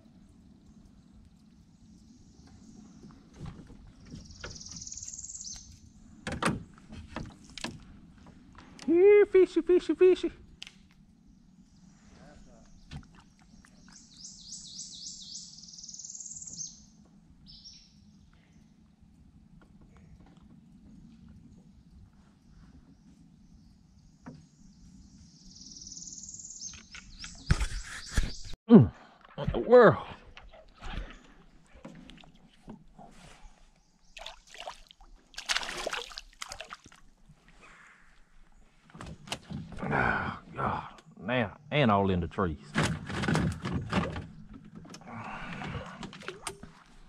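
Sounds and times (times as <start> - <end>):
songbird singing: 0.0 - 28.6, 29.7 - 42.6
fish splashing in water: 34.2 - 37.1.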